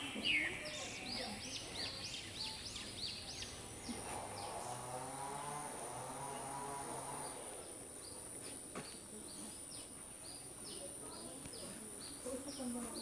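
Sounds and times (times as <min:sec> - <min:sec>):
bird chirps: 0:00.0 - 0:04.6.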